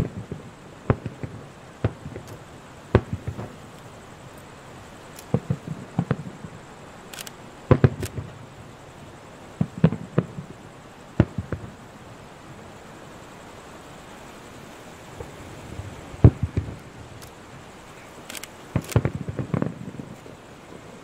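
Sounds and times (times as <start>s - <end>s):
firework shells bursting: 0.0s - 8.4s, 16.2s - 20.3s.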